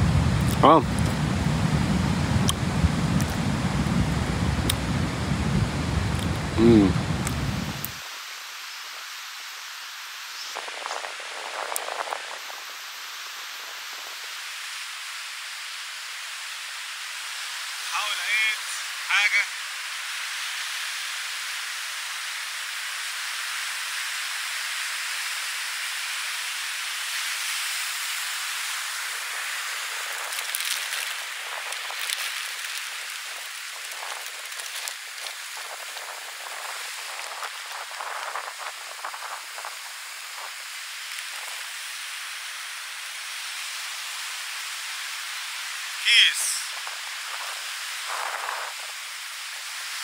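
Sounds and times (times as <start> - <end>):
sea surf washing on beach: 0.0 - 50.0
handling crackles and clicks: 30.2 - 35.4.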